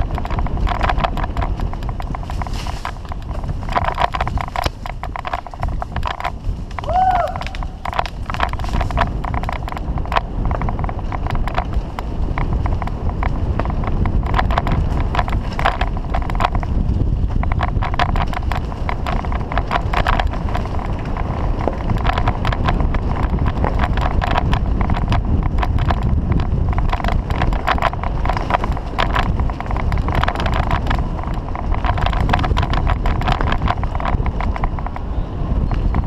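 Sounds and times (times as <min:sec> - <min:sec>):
bicycle rattling and clicking: 0:00.0 - 0:36.0
wind rumble on microphone: 0:00.0 - 0:36.0.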